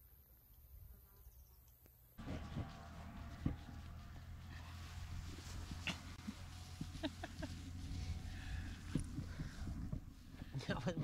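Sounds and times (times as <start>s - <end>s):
low rumble: 2.2s - 10.6s
rustling in grass: 2.2s - 10.9s
soft thumps: 8.2s - 11.0s.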